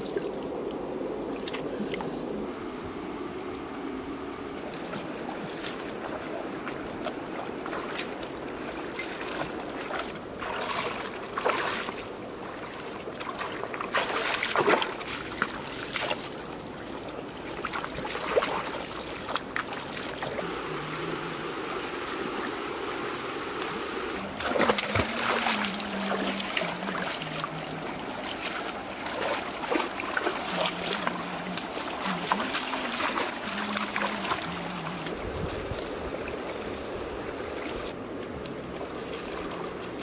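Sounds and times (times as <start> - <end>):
rocky stream trickling: 4.6 - 40.0
splashes of people wading: 4.7 - 22.8, 23.5 - 40.0
heavy splashing of thrown water: 13.3 - 16.3, 24.3 - 35.2.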